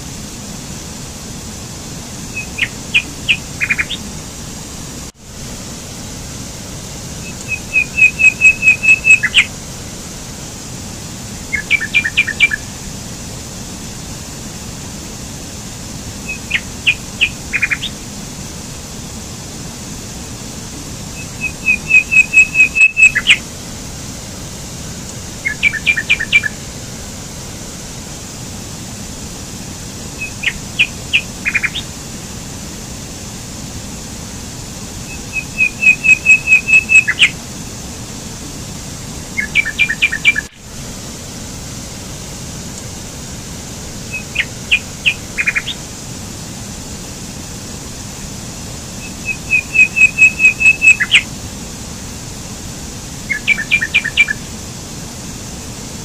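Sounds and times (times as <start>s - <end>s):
songbird singing: 2.2s - 4.1s, 7.2s - 9.5s, 11.4s - 12.7s, 16.2s - 18.0s, 20.8s - 23.5s, 25.1s - 26.6s, 30.0s - 32.0s, 35.0s - 37.4s, 39.2s - 40.6s, 44.0s - 45.9s, 49.0s - 51.3s, 53.2s - 54.4s.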